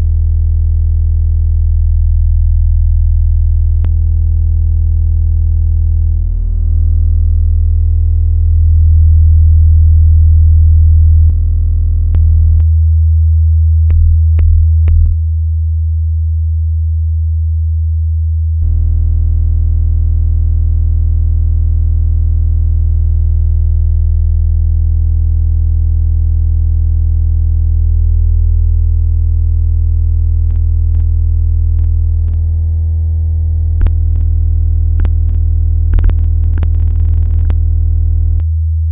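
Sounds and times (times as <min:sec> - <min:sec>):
electronic drone: 0:18.6 - 0:38.5
faint clicks: 0:31.7 - 0:32.4, 0:33.8 - 0:34.4, 0:35.0 - 0:37.6.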